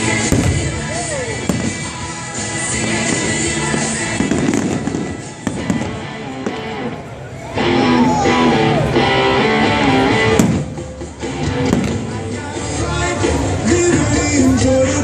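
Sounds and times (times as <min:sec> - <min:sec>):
fireworks bursting: 0:00.0 - 0:07.0, 0:10.2 - 0:13.7
music playing: 0:00.0 - 0:15.0
sharp bang: 0:10.3 - 0:11.0.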